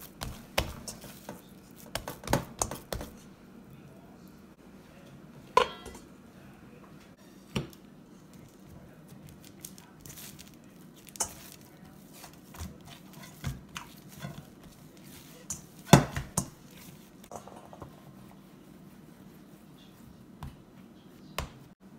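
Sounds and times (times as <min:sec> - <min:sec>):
metal bowl knocking: 0:05.6 - 0:06.1.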